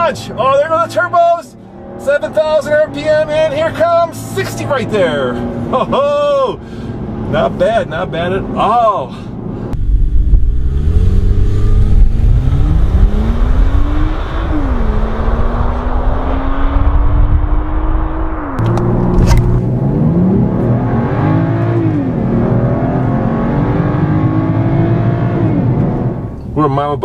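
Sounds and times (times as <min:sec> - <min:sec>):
wind and road noise: 0:00.0 - 0:27.0
car engine accelerating: 0:09.6 - 0:26.5.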